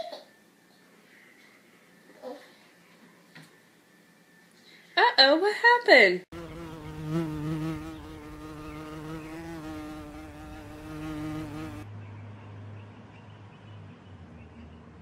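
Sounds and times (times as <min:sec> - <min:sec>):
insect buzzing: 0:06.3 - 0:11.9.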